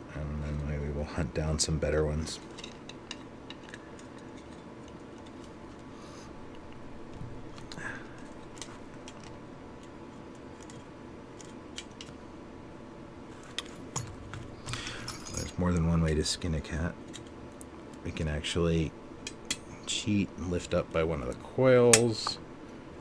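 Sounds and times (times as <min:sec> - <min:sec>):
pliers clicking on metal parts: 0:19.2 - 0:19.7, 0:21.3 - 0:22.4.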